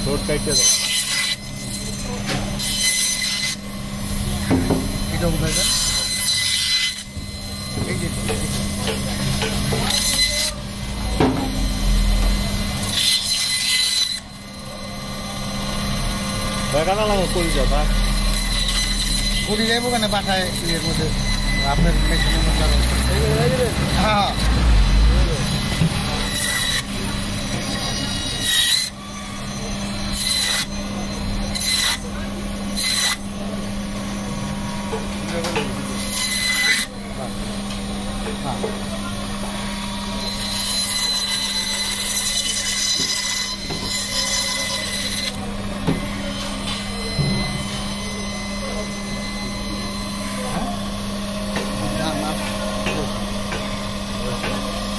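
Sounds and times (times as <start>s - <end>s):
band saw motor hum: 0.0s - 54.9s
saw blade cutting bone: 0.4s - 3.7s, 4.5s - 33.3s, 34.9s - 38.9s, 40.1s - 48.5s.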